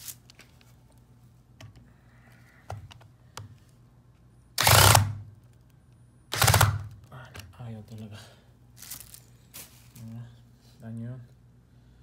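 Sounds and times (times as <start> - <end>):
cordless drill bursts: 4.6 - 5.2, 6.3 - 6.8.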